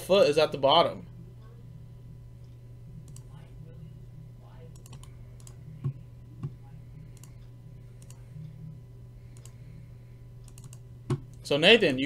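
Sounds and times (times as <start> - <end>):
low steady hum: 0.0 - 12.0
computer mouse clicks: 2.4 - 3.4, 4.7 - 8.3, 9.3 - 9.6, 10.4 - 11.4.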